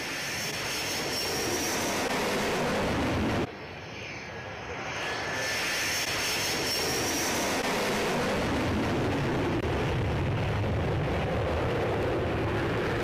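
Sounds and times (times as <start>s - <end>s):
jet engine rumble: 0.0s - 13.0s
thin high whine: 3.5s - 7.7s.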